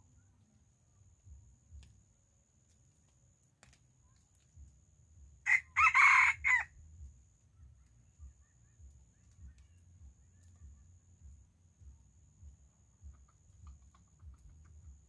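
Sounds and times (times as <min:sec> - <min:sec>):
rooster crowing: 0:05.5 - 0:06.7.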